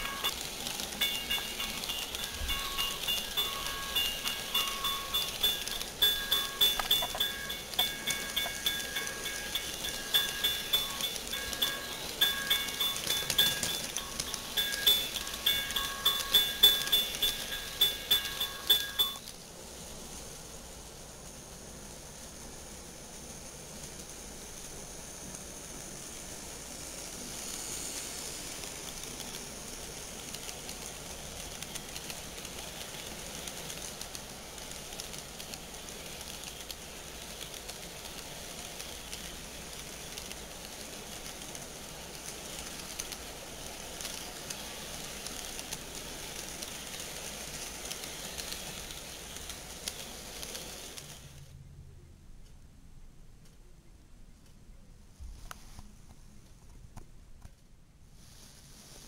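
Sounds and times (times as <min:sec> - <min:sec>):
wheels clicking over rail joints: 0:00.0 - 0:19.3, 0:25.3 - 0:51.4
model train rumbling on track: 0:00.0 - 0:51.5.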